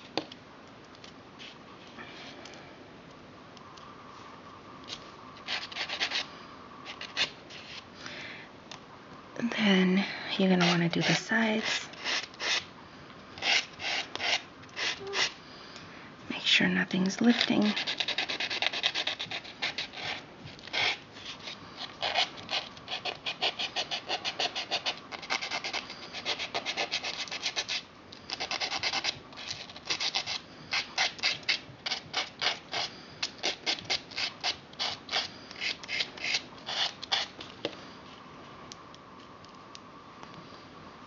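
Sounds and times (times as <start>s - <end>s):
nail filing strokes: 5.4s - 6.3s, 10.6s - 12.7s, 13.4s - 15.4s, 17.3s - 37.3s.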